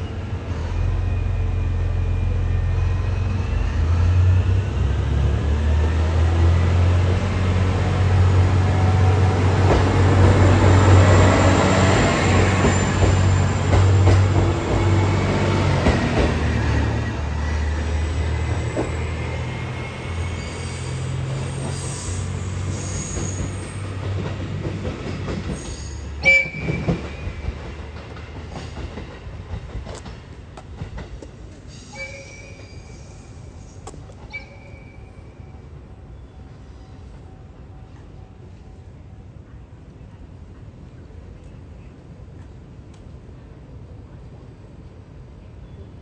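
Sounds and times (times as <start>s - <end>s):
faint wheel squeal: 18.6s - 24.0s, 31.7s - 35.5s.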